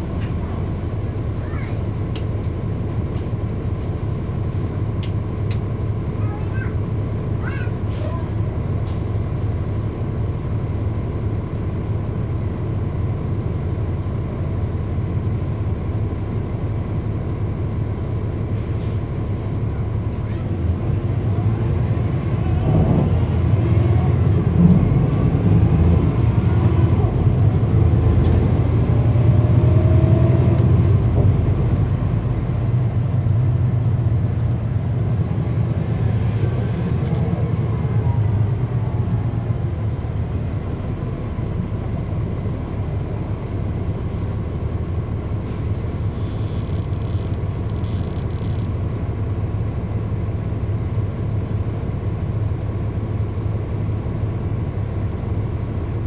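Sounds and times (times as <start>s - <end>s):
bus diesel engine drone: 0.0s - 56.0s
engine cooling fans running: 0.0s - 56.0s.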